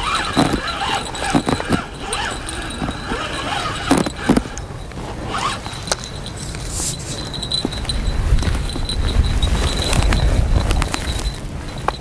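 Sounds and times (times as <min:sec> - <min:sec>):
crunches and knocks: 0:00.0 - 0:04.6
wind rumbling on microphone: 0:00.0 - 0:12.0.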